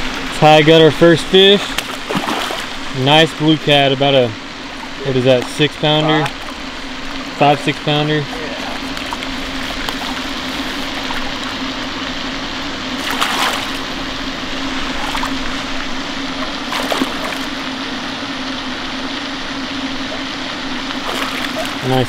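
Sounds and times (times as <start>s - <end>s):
background hiss and hum: 0.0s - 22.0s
fish splashing at surface: 1.7s - 2.8s, 13.0s - 13.9s, 16.4s - 17.7s, 20.9s - 21.8s.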